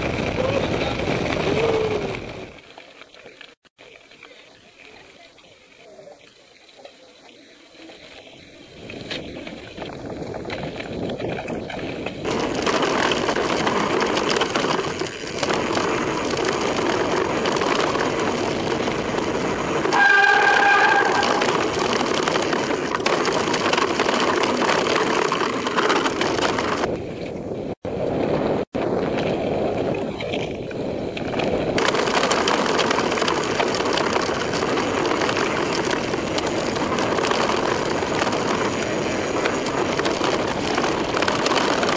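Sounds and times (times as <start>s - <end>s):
wind buffeting microphone: 0.0s - 2.6s, 8.0s - 41.9s
bike rumbling and rattling on gravel: 0.0s - 41.9s
high squeal: 19.9s - 21.6s.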